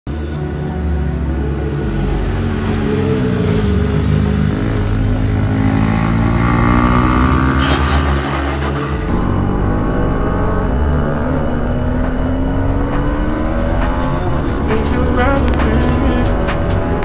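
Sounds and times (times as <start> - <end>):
motorcycle engines running hard: 0.1 - 17.0
motorcycle sliding on asphalt: 2.4 - 9.4.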